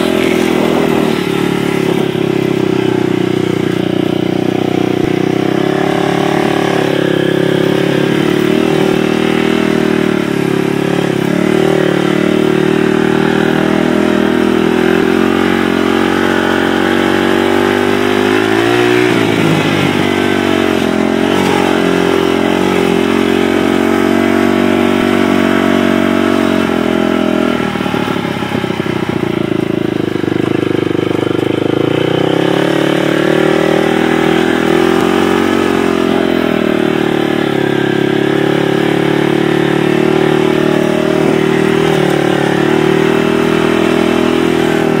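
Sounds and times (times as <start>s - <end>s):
atv engine running: 0.0s - 45.0s.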